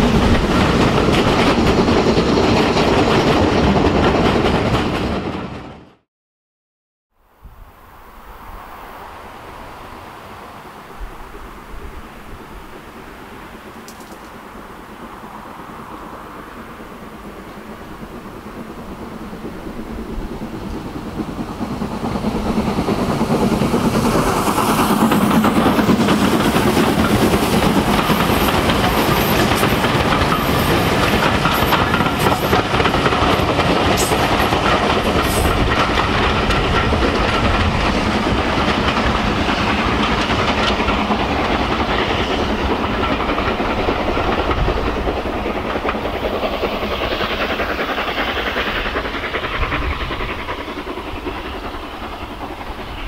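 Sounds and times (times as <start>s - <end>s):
steam locomotive passing: 0.0s - 6.0s, 7.2s - 53.0s
wheels clattering over rail joints: 22.2s - 50.6s.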